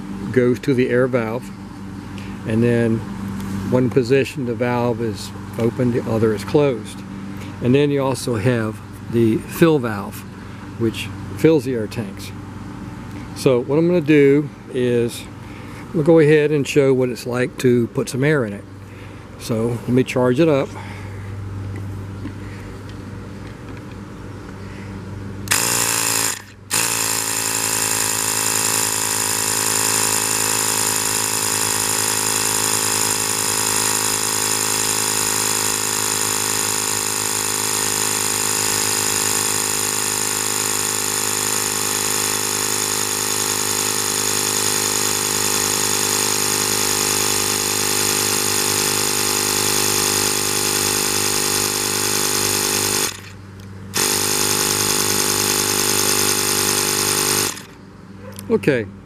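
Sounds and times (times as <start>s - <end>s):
air compressor running: 0.0s - 3.9s, 25.4s - 57.9s.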